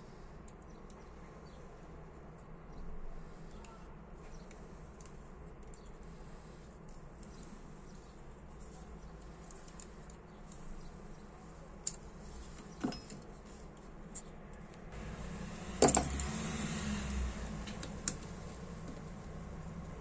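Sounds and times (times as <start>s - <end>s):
low rumble: 15.0s - 20.0s.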